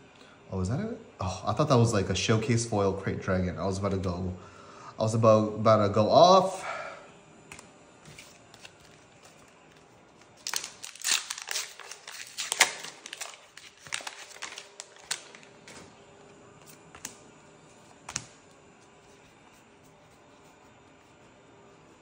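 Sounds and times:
wrapper crinkling: 8.4 - 15.9
cards clicking and snapping: 18.0 - 18.4.

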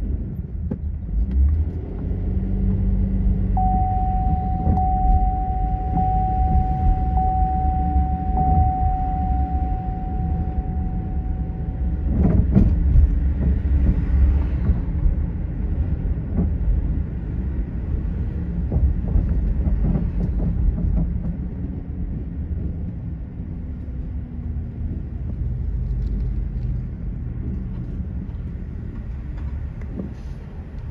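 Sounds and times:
car road and engine rumble: 0.0 - 30.9
steady high tone: 3.6 - 12.2.

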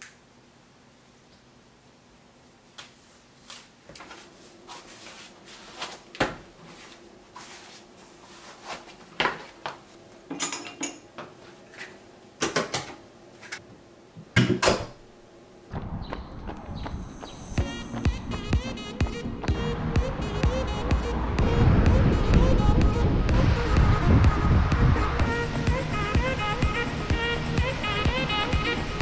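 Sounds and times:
rustling of clothes: 2.7 - 10.0.

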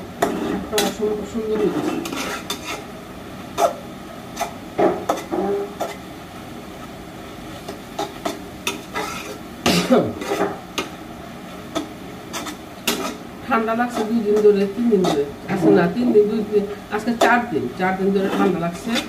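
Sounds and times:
spatula scraping in a pan: 0.1 - 2.9, 3.5 - 6.0, 7.6 - 9.4, 10.1 - 10.9, 11.6 - 19.0.

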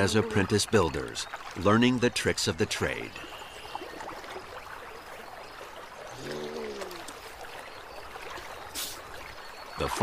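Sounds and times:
water trickling and sloshing: 0.0 - 10.0
low voice-like tone: 6.1 - 7.1.

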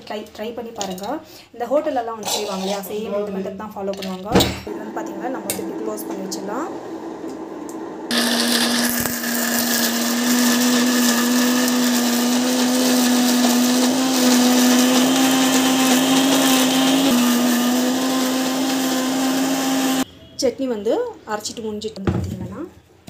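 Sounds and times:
electric mixer grinder running: 4.8 - 20.0.

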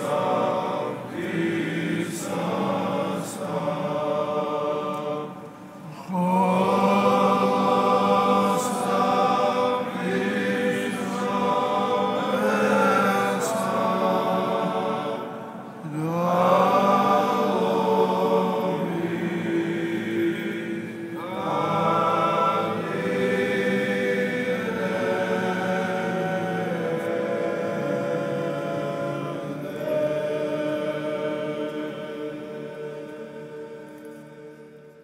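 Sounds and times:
choir singing a chant: 0.0 - 35.0.

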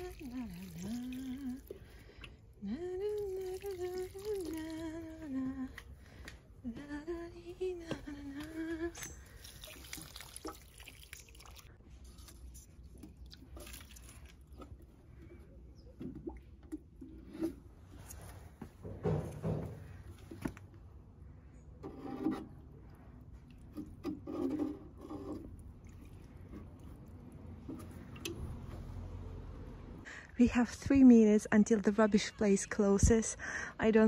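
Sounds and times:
water trickling from watering can: 0.0 - 5.8, 9.0 - 17.3, 22.3 - 29.1
woman humming: 6.6 - 9.0.

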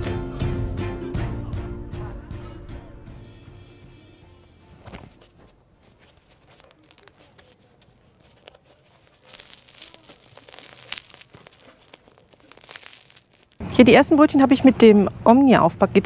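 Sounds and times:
cloth rustling: 4.6 - 13.6
bread roll crackling: 4.6 - 14.3.

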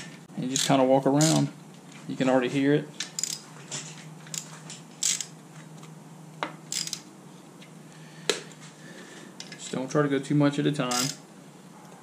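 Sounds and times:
faint steady hum: 0.0 - 12.0
sharp metallic clicks: 10.9 - 11.2.

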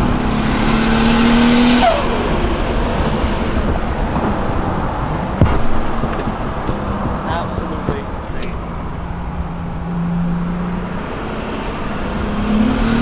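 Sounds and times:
car engine pulling hard: 0.0 - 13.0
road noise: 0.0 - 13.0
sharp knock: 5.4 - 7.2.

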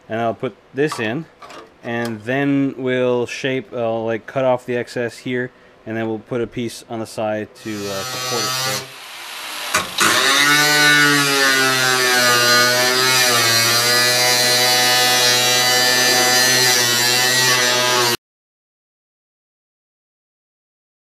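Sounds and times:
angle grinder cutting sheet metal: 7.6 - 18.2.

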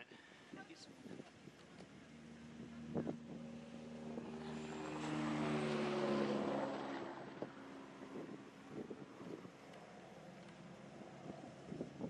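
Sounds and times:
vehicle driving past: 2.1 - 11.6.

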